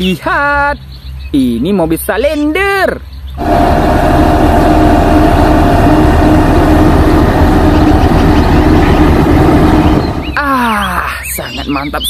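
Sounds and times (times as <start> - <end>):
road roller diesel engine droning: 3.4 - 10.4.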